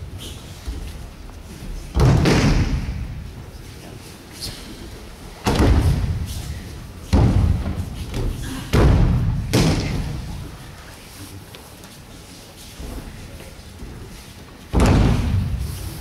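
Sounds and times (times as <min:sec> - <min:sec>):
body thuds on mats: 0:01.9 - 0:03.1, 0:07.1 - 0:10.3, 0:14.7 - 0:15.6.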